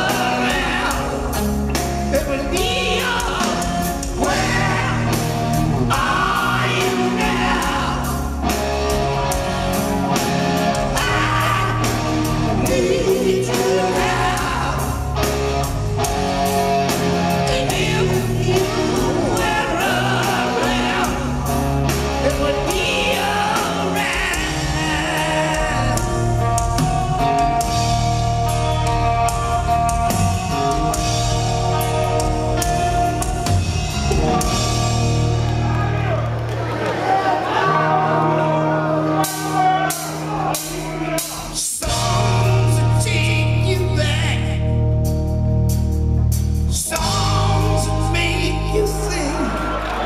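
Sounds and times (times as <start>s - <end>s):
man singing lead: 0.0s - 8.6s, 10.7s - 15.3s, 17.3s - 26.8s, 37.6s - 44.8s, 46.7s - 49.8s
drum kit with cymbals: 0.0s - 36.0s, 39.2s - 49.2s.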